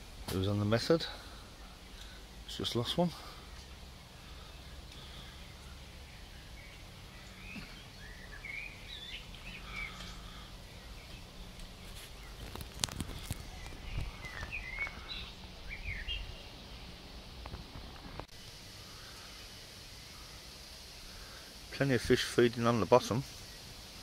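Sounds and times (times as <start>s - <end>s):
small birds chirping: 0.0s - 24.0s
wind rumble on microphone: 12.3s - 16.4s.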